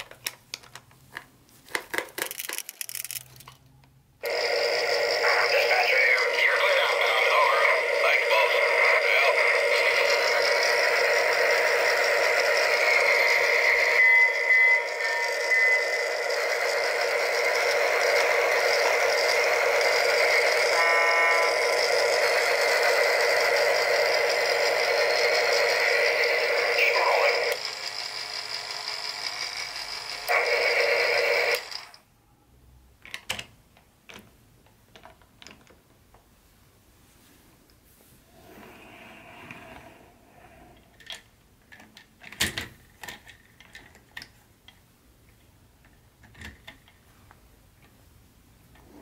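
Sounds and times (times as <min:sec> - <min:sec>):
tinny toy train sound effects: 0:04.2 - 0:32.0.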